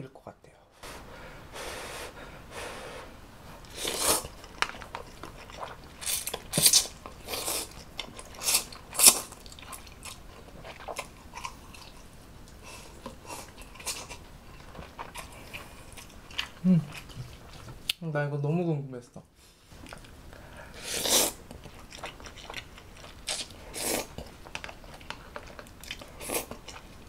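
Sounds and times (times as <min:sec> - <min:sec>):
noodles being slurped: 0:03.6 - 0:11.5
chewing and mouth smacks: 0:03.6 - 0:18.0, 0:21.4 - 0:27.0.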